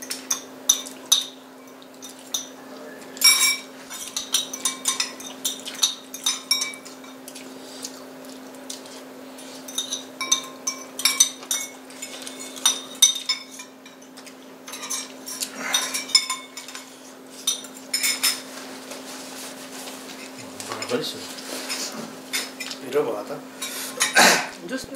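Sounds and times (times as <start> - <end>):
cutlery clinking on plates: 0.0 - 7.4, 9.6 - 18.5, 21.6 - 22.8, 23.6 - 24.5.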